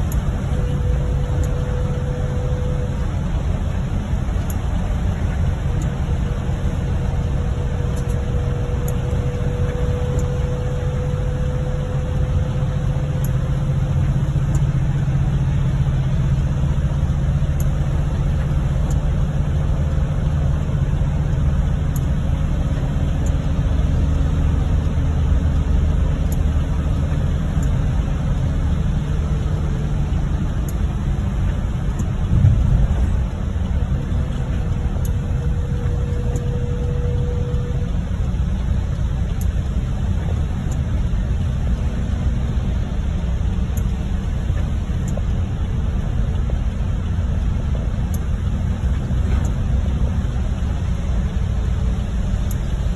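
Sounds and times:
vehicle engine and road rumble: 0.0s - 52.9s.

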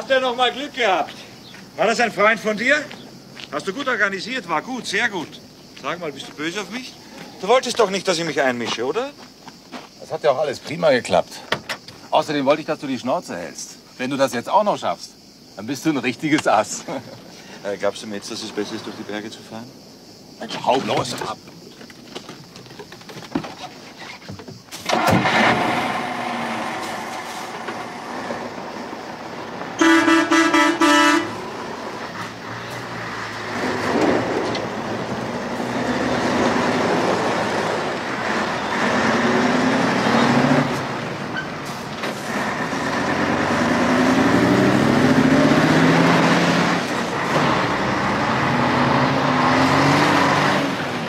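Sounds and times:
truck horn: 29.8s - 31.6s.

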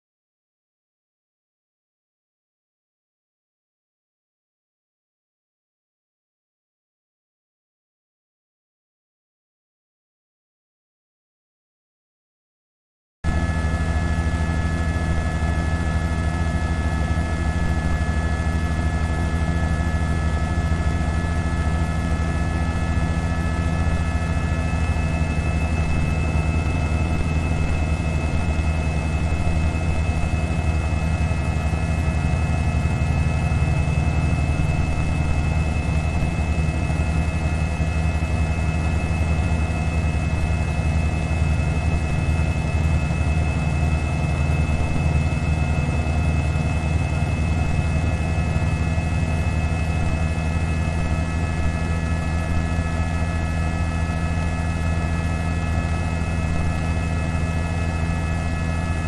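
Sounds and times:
helicopter engine and rotor drone: 13.2s - 59.0s
high turbine whine: 13.3s - 59.0s.

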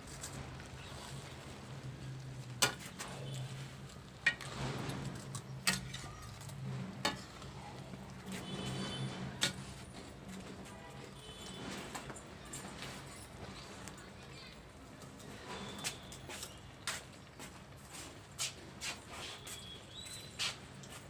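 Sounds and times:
ladle stirring and scraping pan: 0.2s - 12.0s.

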